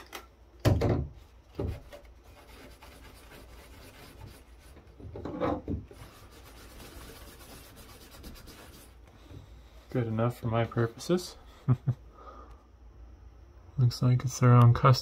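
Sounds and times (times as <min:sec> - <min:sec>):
cloth scrubbing circuit board: 0:05.9 - 0:09.0.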